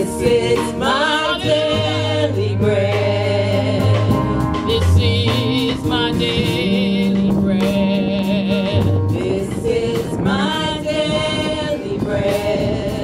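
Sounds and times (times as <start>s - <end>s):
gospel singing with instruments: 0.0s - 13.0s.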